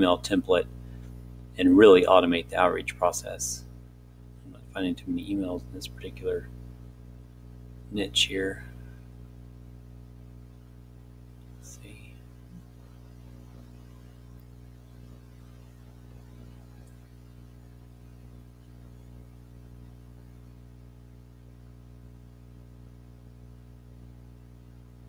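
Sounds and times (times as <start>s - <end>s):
electrical mains hum: 0.0s - 25.0s
faint hiss: 10.4s - 20.6s.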